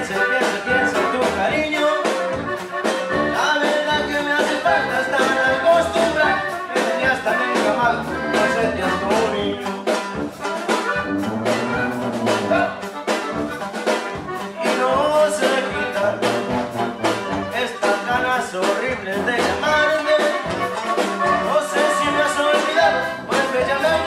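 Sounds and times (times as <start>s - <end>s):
sousaphone bass line: 0.0s - 14.4s, 15.8s - 18.3s, 19.0s - 24.0s
accordion: 0.0s - 24.0s
bajo sexto strumming: 0.0s - 24.0s
steady drum beat: 0.0s - 24.0s.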